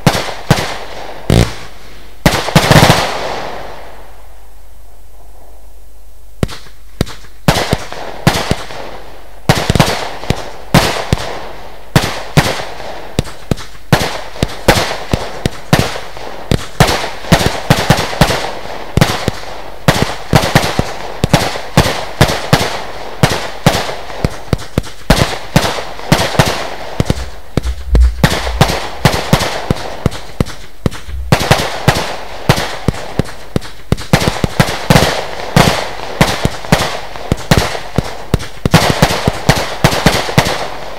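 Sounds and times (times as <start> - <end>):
firework cake launch shots: 0.0 - 3.8, 6.4 - 40.8
hissing and crackling: 0.1 - 3.8, 22.6 - 39.6.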